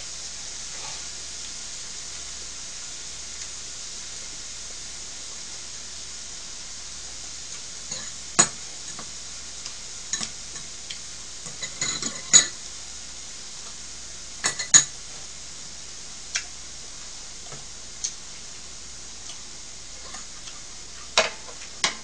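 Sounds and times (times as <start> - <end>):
meat sizzling on griddle: 0.0 - 22.0.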